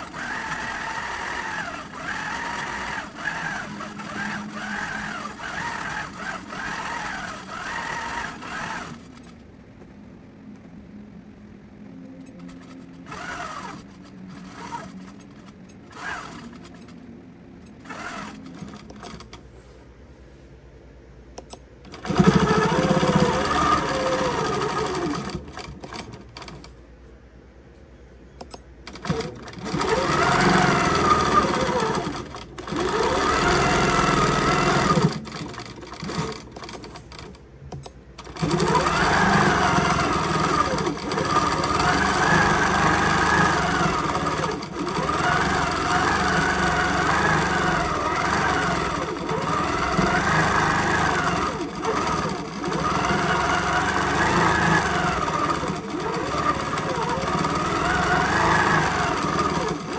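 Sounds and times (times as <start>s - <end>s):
quilting machine stitching: 0.0s - 9.4s, 12.2s - 19.4s, 21.5s - 26.8s, 28.8s - 59.9s.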